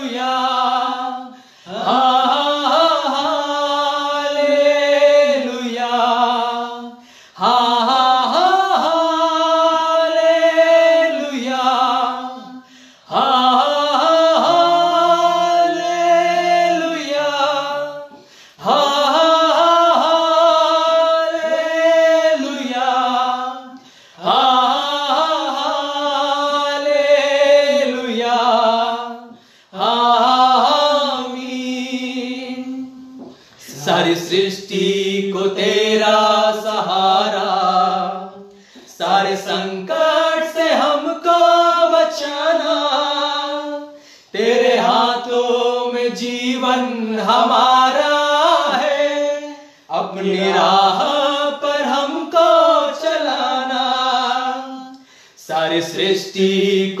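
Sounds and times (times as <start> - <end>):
lower harmony voice: 0.0 - 57.0
men singing unaccompanied: 0.0 - 57.0.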